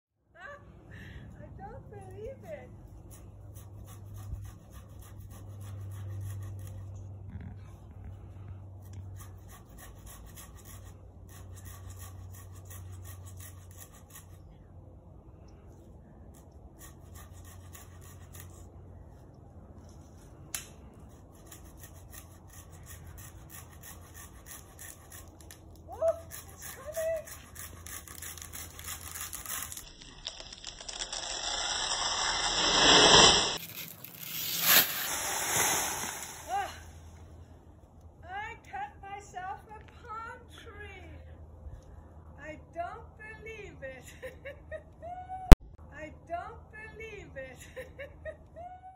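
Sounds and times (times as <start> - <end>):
swishing fronds: 29.0 - 37.1
tree crashing down: 29.1 - 36.6
handsaw cutting wood: 30.6 - 36.6.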